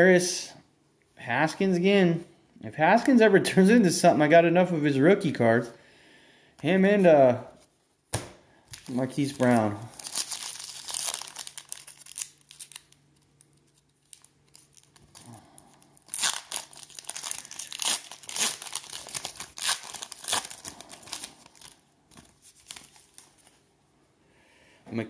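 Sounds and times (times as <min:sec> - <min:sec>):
plastic wrapper tearing and crinkling: 0:08.7 - 0:23.6.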